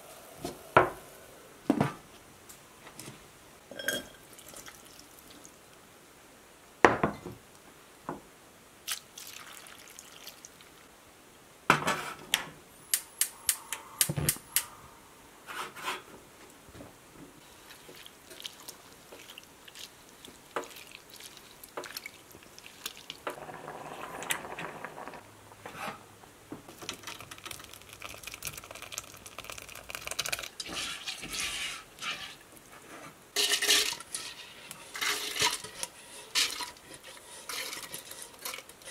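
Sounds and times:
dripping: 17.6 - 23.4, 26.8 - 31.3
masher scraping pot: 29.8 - 32.4, 33.4 - 38.9.

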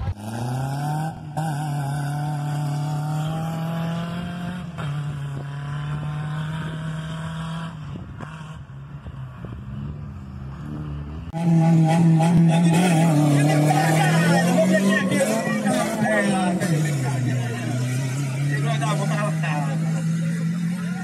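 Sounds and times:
engines revving high: 0.0 - 21.0
loud engine: 0.0 - 21.0.

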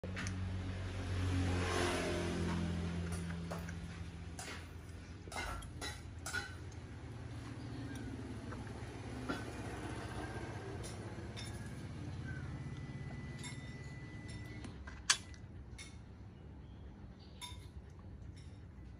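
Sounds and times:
light clinks: 10.7 - 12.0.

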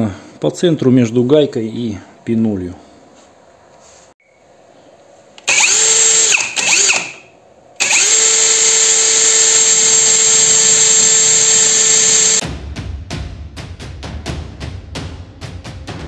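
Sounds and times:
drill motor high whine: 5.4 - 12.4.

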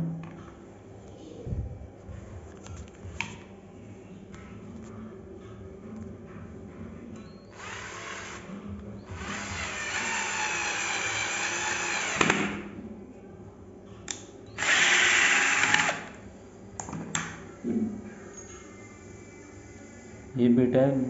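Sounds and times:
cordless drill driving screw: 7.6 - 8.5, 9.1 - 12.6, 14.6 - 16.1
drill clicks: 7.6 - 8.5, 9.1 - 12.6, 14.6 - 16.1.

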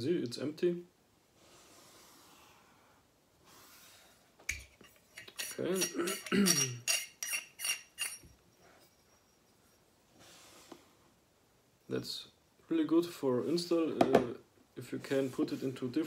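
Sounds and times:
person murmuring: 5.8 - 6.8.

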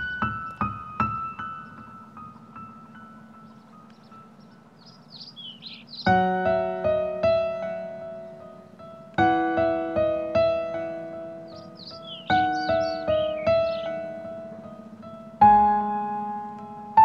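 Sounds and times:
bird chirps: 0.0 - 6.5, 11.4 - 15.2
soft piano music: 0.0 - 17.0.

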